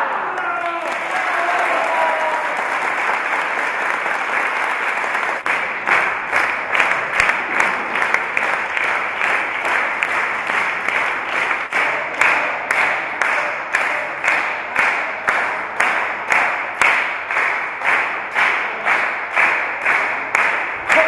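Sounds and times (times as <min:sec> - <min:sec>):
group applauding: 0:00.0 - 0:21.0
rhythmic hand-clapping: 0:00.0 - 0:21.0.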